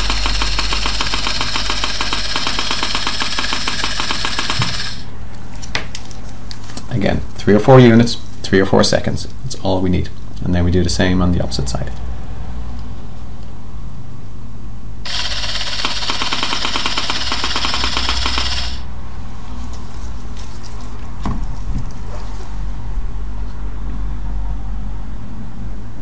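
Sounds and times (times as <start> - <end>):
scanner buzzing rattle: 0.0 - 5.1, 15.0 - 18.9.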